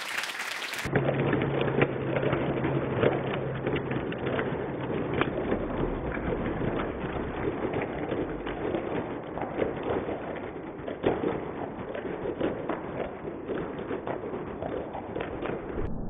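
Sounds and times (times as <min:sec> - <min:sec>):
slowed audience applause: 0:00.0 - 0:00.9.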